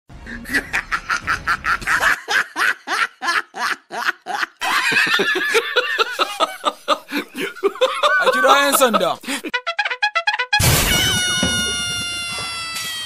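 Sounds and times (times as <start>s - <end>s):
high-pitched rhythmic laughter: 0.3s - 10.6s.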